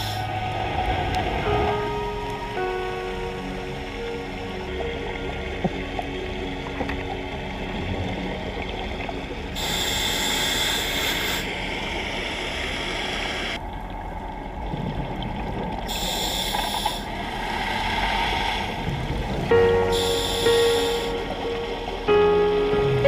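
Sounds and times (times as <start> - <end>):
underwater water rushing: 0.0 - 23.0
regulator bubbles hissing: 9.5 - 13.6, 15.8 - 21.3.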